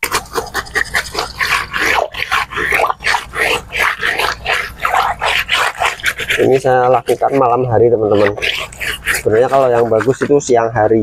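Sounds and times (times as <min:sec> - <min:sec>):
brush scrubbing plastic tray: 0:00.0 - 0:11.0
running water: 0:00.0 - 0:11.0.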